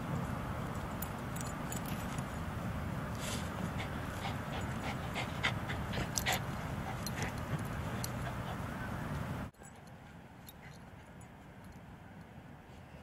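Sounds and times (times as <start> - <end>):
dogs panting and huffing: 3.3 - 11.4.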